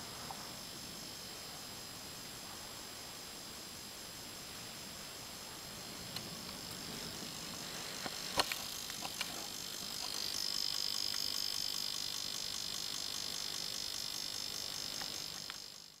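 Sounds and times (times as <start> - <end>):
high-pitched insect trill: 0.0 - 16.0
steady hiss: 0.0 - 16.0
sharp clicks: 8.0 - 15.8.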